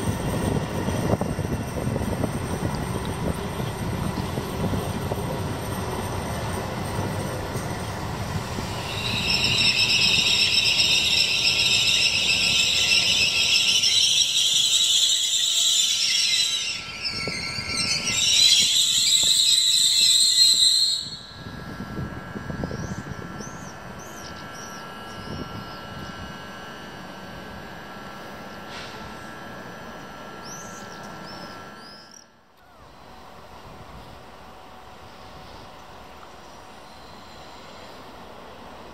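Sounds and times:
train wheels squealing on rails: 0:00.0 - 0:26.9, 0:36.4 - 0:38.9
low train rumble: 0:00.0 - 0:38.9.

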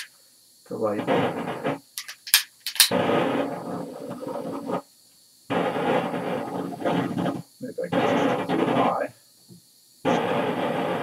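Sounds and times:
gas rushing from torch: 0:00.7 - 0:02.0, 0:02.9 - 0:04.9, 0:05.5 - 0:09.2, 0:10.0 - 0:11.0.

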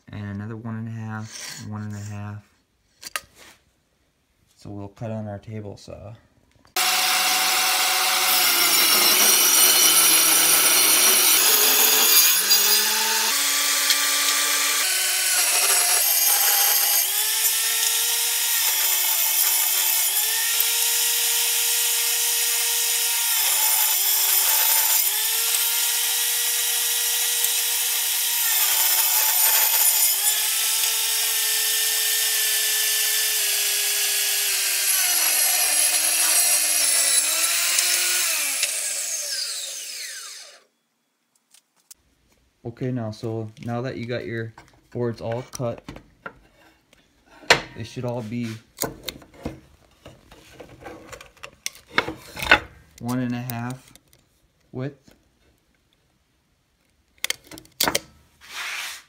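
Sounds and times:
table saw cutting wood: 0:06.8 - 0:40.7, 0:58.4 - 0:59.0.

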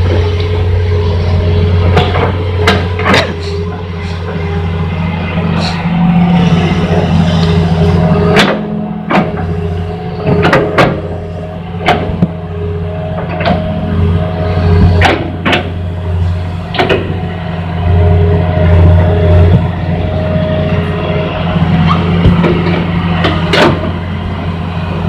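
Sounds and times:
excavator diesel engine droning: 0:00.0 - 0:25.0.

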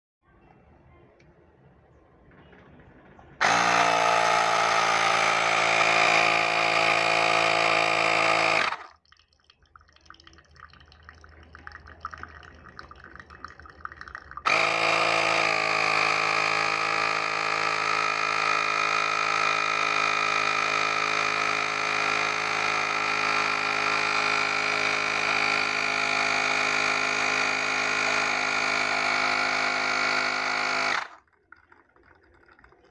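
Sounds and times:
electric pump whining: 0:03.4 - 0:08.9, 0:14.4 - 0:31.2.

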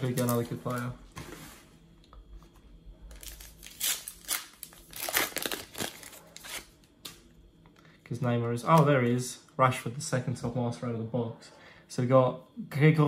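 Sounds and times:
wrapper tearing and crinkling: 0:03.1 - 0:06.8.

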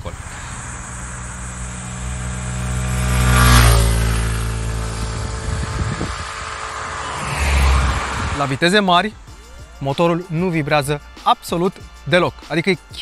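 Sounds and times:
scooter engine passing by: 0:00.0 - 0:08.6
wind and tyre noise: 0:00.0 - 0:09.3.

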